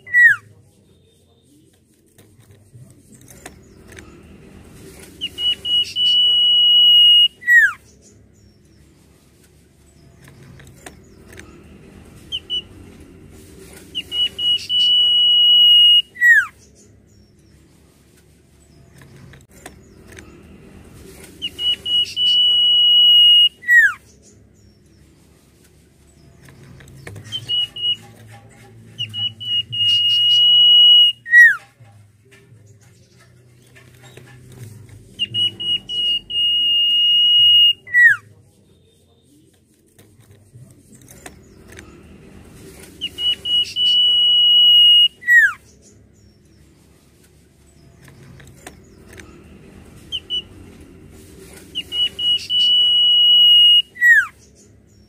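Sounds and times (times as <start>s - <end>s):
bird singing high whistle: 5.2s - 7.8s, 14.0s - 16.5s, 21.4s - 24.0s, 27.2s - 28.1s, 29.0s - 31.6s, 35.2s - 38.2s, 43.0s - 45.6s, 51.8s - 54.3s.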